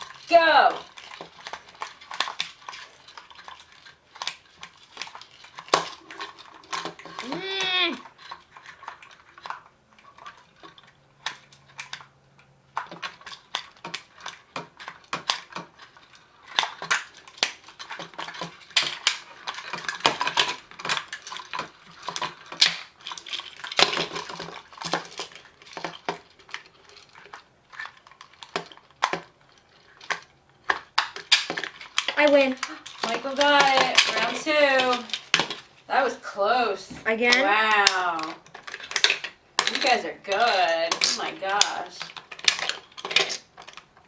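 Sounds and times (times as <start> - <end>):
small parts clattering on table: 0.0 - 12.1, 12.7 - 35.8, 36.9 - 44.0
plastic handcuffs clicking and rattling: 0.0 - 35.8, 37.2 - 44.0.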